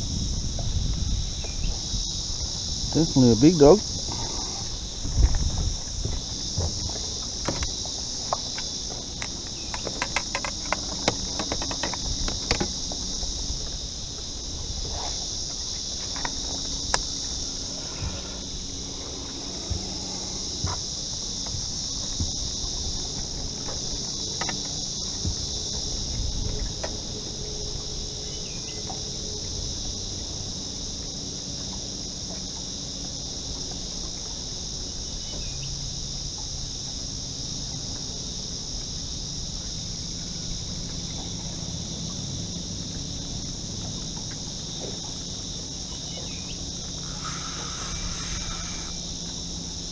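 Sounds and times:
insects buzzing: 0.0 - 49.9
sharp clicks and knocks: 8.3 - 12.8.

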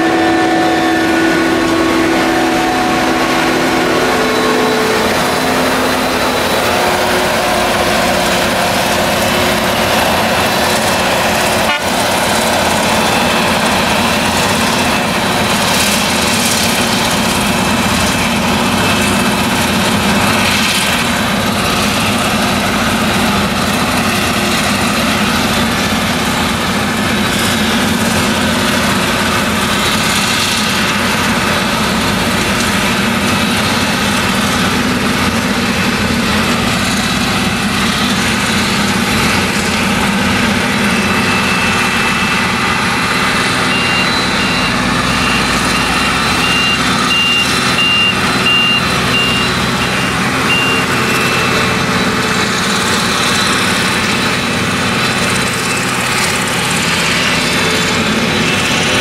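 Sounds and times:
engine running under load: 0.0 - 59.0
tractor: 0.0 - 59.0
rapid high beeping: 41.0 - 51.7.

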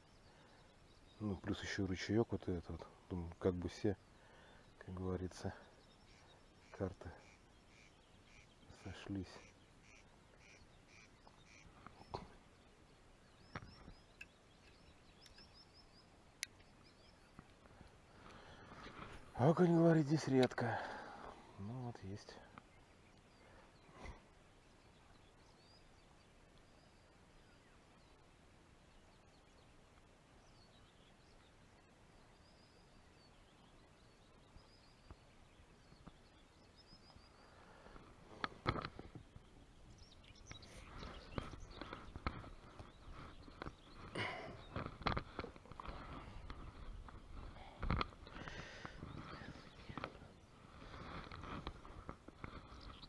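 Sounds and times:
small bird chirping: 0.0 - 20.6, 21.6 - 53.0
soft ticks: 13.5 - 15.6, 16.4 - 17.7.

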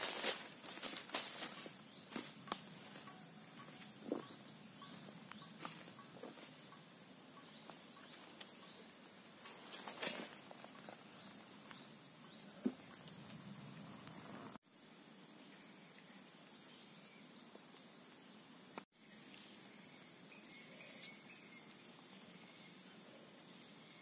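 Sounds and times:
high-pitched insect drone: 0.0 - 14.6
twig fire crackling: 4.9 - 6.6, 9.3 - 14.6, 17.2 - 23.8.

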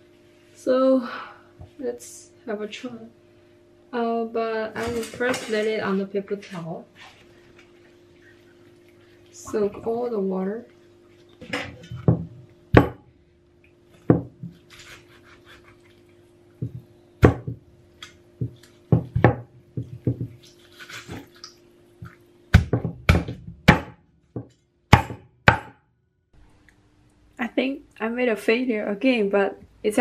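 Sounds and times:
cleaver chopping on wooden board: 12.8 - 13.0, 16.6 - 17.6, 22.5 - 25.8.

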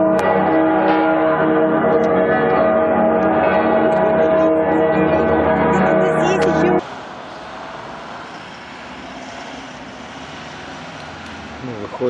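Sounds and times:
church bells pealing: 0.0 - 6.8.

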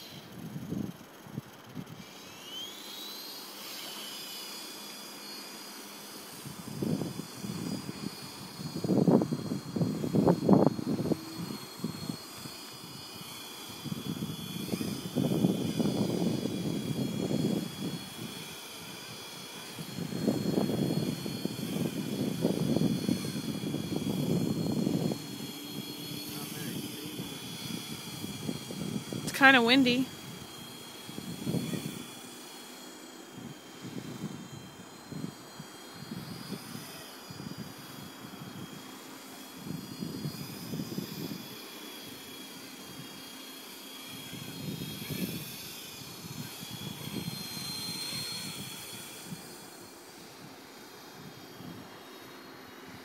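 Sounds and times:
helicopter rotor whine: 0.0 - 53.0
wind buffeting microphone: 6.3 - 32.2, 39.5 - 41.6, 44.0 - 49.8.

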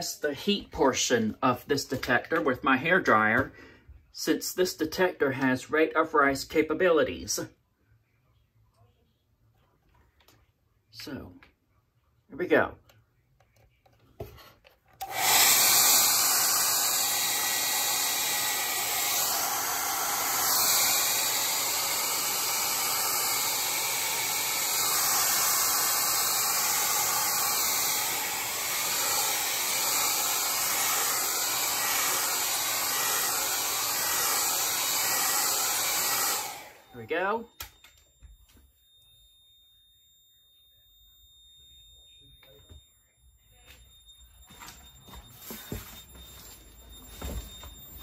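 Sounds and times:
hair dryer blowing: 15.0 - 37.9, 45.1 - 48.0.

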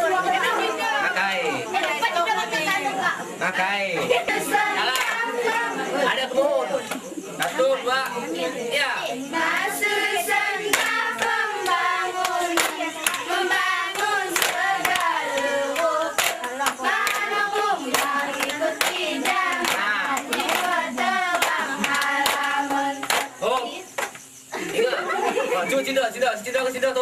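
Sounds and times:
girls singing a chant: 4.0 - 24.0
hands clapping: 4.8 - 5.6, 10.6 - 24.2.

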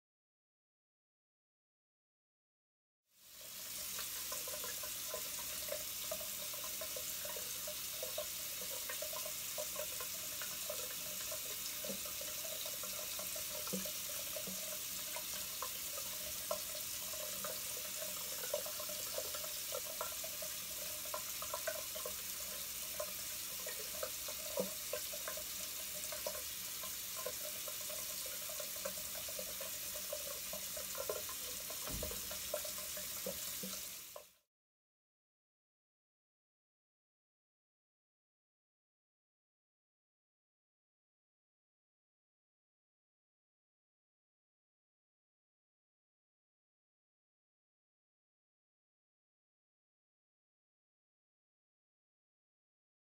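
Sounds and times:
tap water running into a sink: 3.2 - 34.4.

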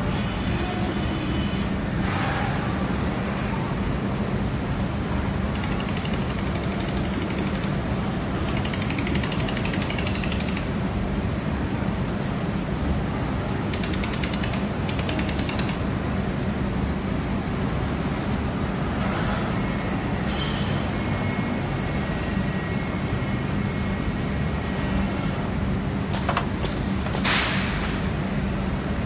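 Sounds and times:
laser welding machine humming: 4.0 - 17.4.

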